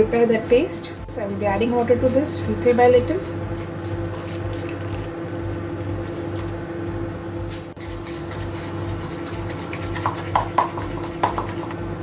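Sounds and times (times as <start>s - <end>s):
steady low hum: 0.0s - 12.0s
spatula squishing and scraping paste: 1.1s - 5.5s, 7.5s - 11.8s.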